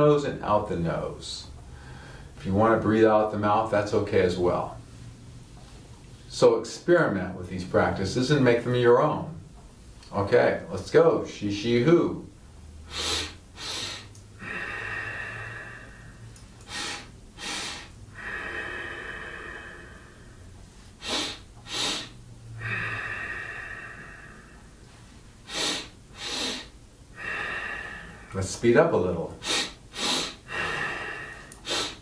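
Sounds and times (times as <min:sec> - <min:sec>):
man inhaling sharply: 0:01.7 - 0:02.4, 0:12.8 - 0:28.4, 0:29.4 - 0:32.0
man exhaling: 0:12.8 - 0:28.4, 0:29.4 - 0:32.0.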